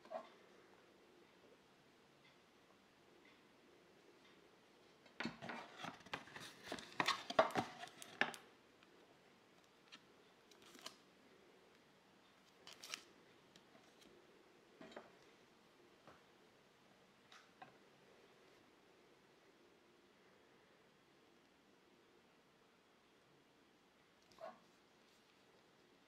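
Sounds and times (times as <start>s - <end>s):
packaging scrapes and rustles: 5.4s - 8.4s.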